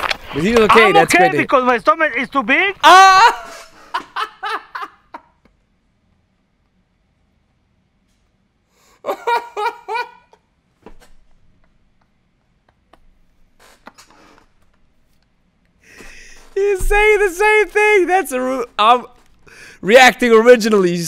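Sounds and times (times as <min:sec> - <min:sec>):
man laughing: 0:00.5 - 0:01.5, 0:02.8 - 0:05.4, 0:09.0 - 0:10.4, 0:15.9 - 0:18.9.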